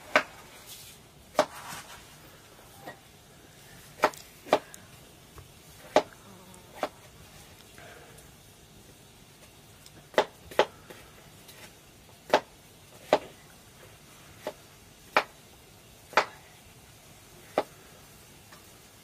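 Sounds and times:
knife chopping food: 1.3 - 1.6, 4.0 - 4.7, 5.8 - 6.1, 10.1 - 10.8, 12.2 - 13.3, 14.4 - 15.4.

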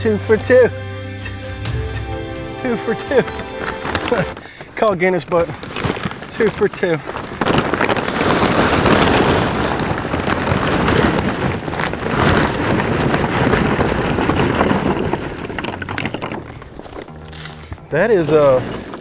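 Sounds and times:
charcoal chunks tumbling and clattering: 2.6 - 19.0.

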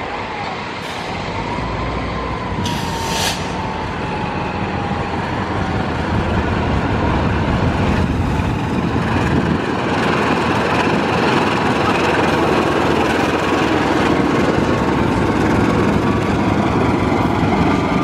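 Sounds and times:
diesel locomotive rumbling: 0.0 - 18.0
brief hiss: 2.6 - 3.7.

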